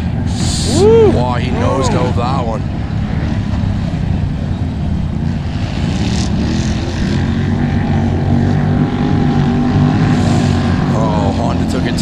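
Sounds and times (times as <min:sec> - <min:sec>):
racing atv engines: 0:00.0 - 0:12.0.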